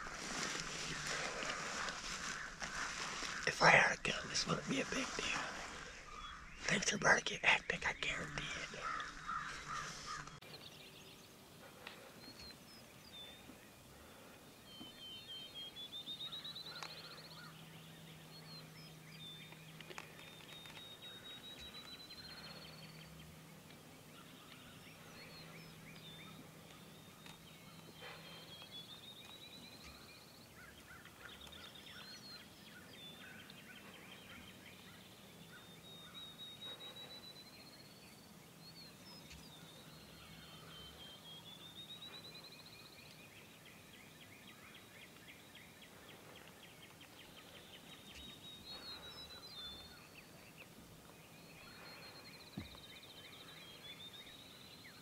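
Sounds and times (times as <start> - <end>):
songbird trilling: 7.8 - 10.4.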